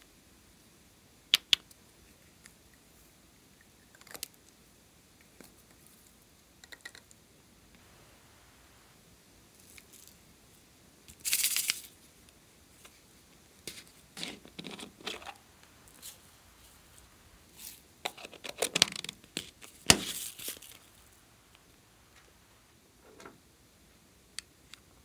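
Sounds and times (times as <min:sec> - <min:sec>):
sprinkles rattling in plastic jar: 0:11.1 - 0:12.0, 0:17.5 - 0:21.1.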